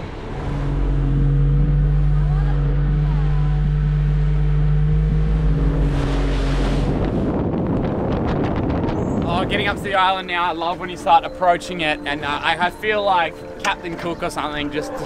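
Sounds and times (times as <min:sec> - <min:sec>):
rush of noise: 0:00.0 - 0:10.0
motorboat engine droning: 0:00.0 - 0:15.0.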